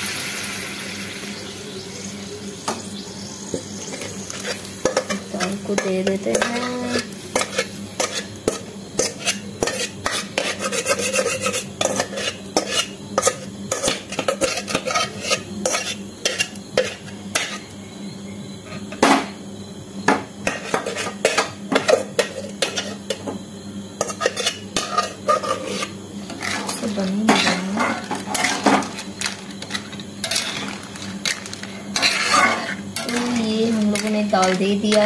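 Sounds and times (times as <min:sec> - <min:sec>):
metal spoon scraping metal bowl: 0:03.9 - 0:17.7, 0:20.5 - 0:23.2, 0:24.0 - 0:35.0.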